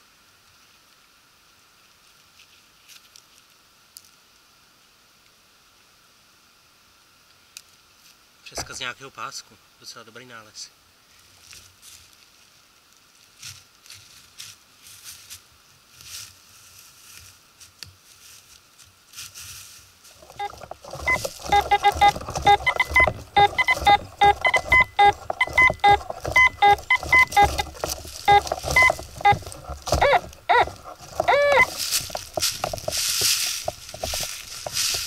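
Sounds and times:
metal detector short beeps: 20.3s - 31.8s
metal detector swooping tones: 20.3s - 31.8s.

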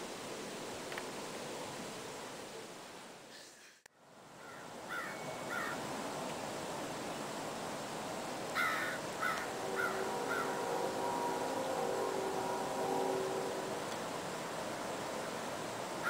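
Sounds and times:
outdoor hiss: 0.0s - 16.0s
bird calls: 4.4s - 5.8s, 8.6s - 10.7s
locomotive air horn: 9.2s - 15.7s.

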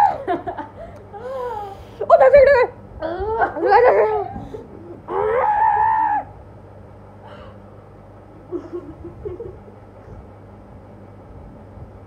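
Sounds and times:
boys shrieking excitedly: 5.1s - 6.3s.

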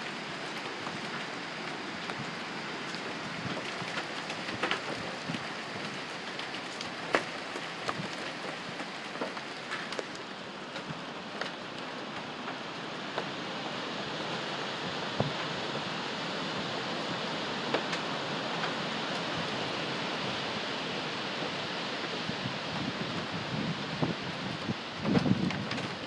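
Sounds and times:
wind rushing through trees: 0.0s - 26.0s
sharp ticks and pops: 0.5s - 11.6s.

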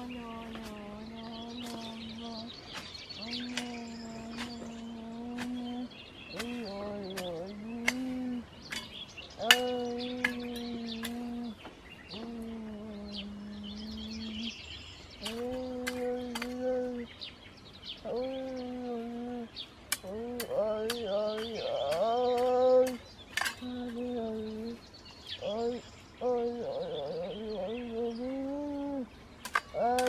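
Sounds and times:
hoe striking soil: 0.0s - 11.5s, 15.2s - 16.7s, 19.9s - 24.2s, 29.4s - 30.0s
small birds chirping: 0.0s - 30.0s.

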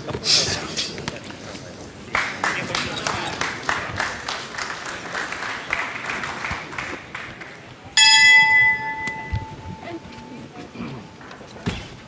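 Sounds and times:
boxing ring bell clang: 8.0s - 9.9s.

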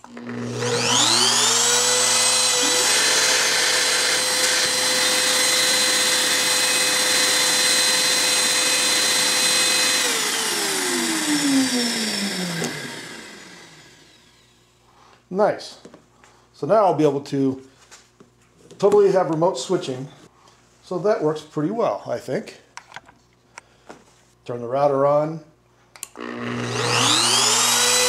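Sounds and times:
router high whine: 0.0s - 14.6s, 26.2s - 28.0s
vacuum motor running: 0.0s - 14.6s, 26.2s - 28.0s.

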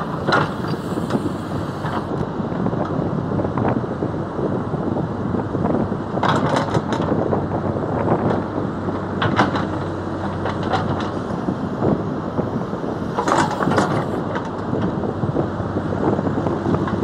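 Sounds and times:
excavator engine running: 0.0s - 2.6s, 8.2s - 15.8s
bucket clanks and scrapes: 13.2s - 14.2s.

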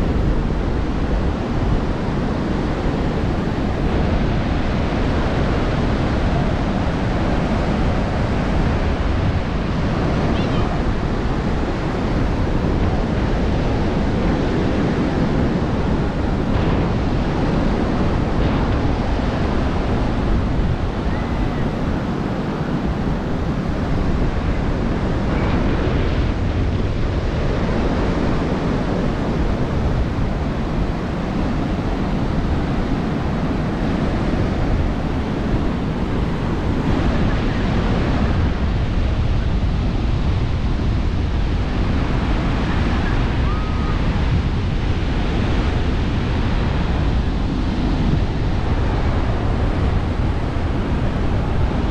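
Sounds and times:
surf washing onto beach: 0.0s - 51.9s
wind rumbling on microphone: 0.0s - 51.9s.

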